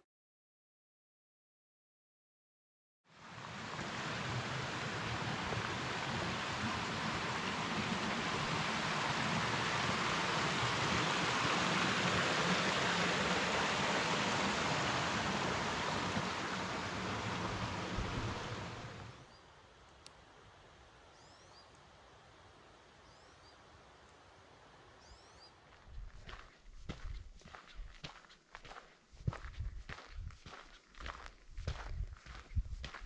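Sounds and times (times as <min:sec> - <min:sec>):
mountain stream rushing: 0:03.1 - 0:19.2.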